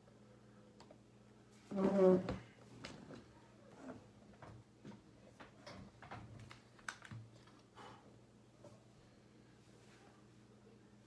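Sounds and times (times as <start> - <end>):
faint keyboard typing: 6.0 - 7.7.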